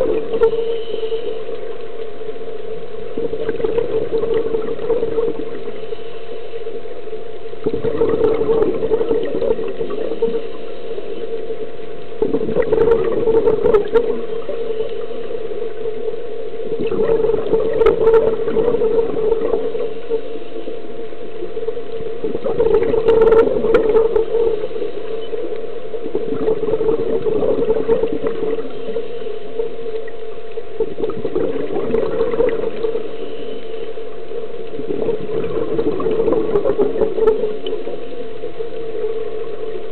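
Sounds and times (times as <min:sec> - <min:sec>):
regulator bubbles gurgling: 0:00.0 - 0:39.9
steady low hum: 0:00.0 - 0:39.9.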